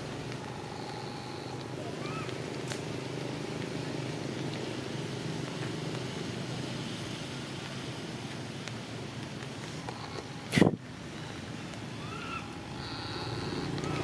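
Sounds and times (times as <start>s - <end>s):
low mechanical hum: 0.0s - 6.4s, 9.2s - 14.0s
faint hiss: 0.0s - 14.0s.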